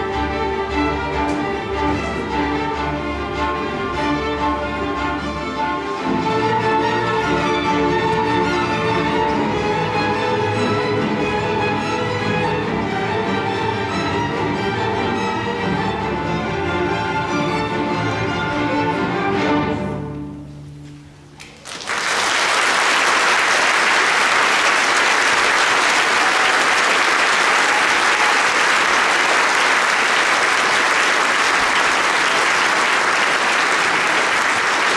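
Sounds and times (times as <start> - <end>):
string orchestra playing: 0.0 - 21.3, 23.0 - 34.9
audience applause: 21.4 - 34.9.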